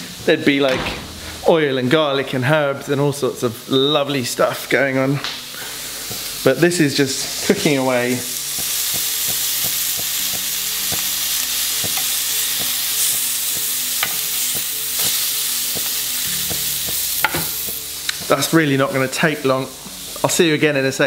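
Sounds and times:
chicken sizzling in grill pan: 0.0 - 21.0
metal tongs turning meat: 7.3 - 19.0.

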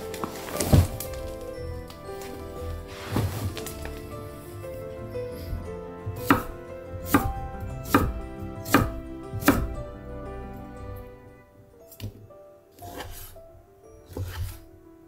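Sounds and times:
background music with held notes: 0.0 - 15.0
knife chopping on wooden board: 6.1 - 9.8, 14.1 - 14.6.

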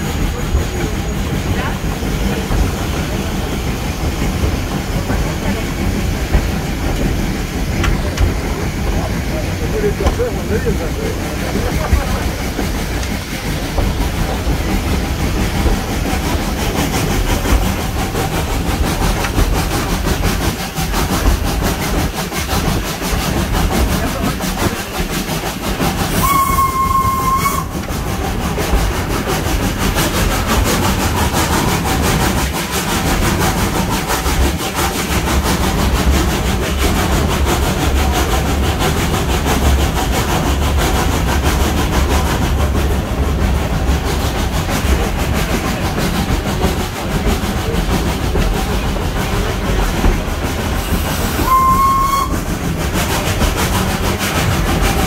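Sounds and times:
train rumble and rail clatter: 0.0 - 55.0
steam whistle blast: 26.2 - 27.7, 51.4 - 52.4.

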